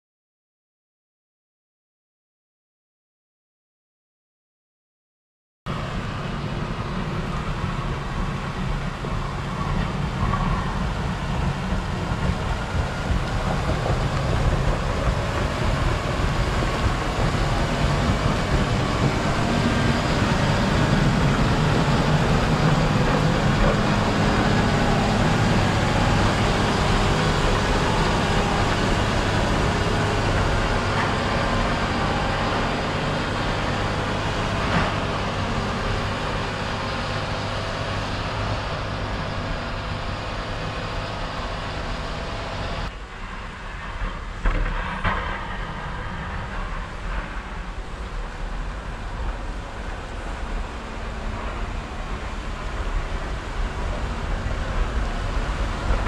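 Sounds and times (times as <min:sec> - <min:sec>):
diesel engine droning: 0:05.7 - 0:56.0.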